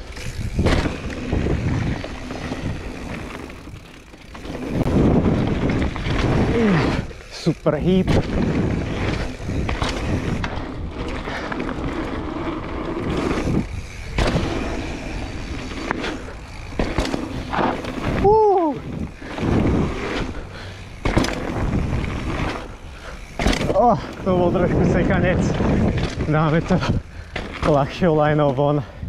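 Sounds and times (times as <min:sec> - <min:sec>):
bike knocks and rattles: 0:00.0 - 0:28.9
bike tyre rushing noise: 0:00.0 - 0:29.0.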